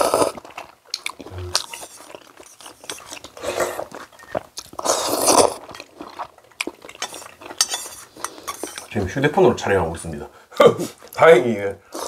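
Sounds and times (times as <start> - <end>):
person chewing and biting: 0.0 - 8.9.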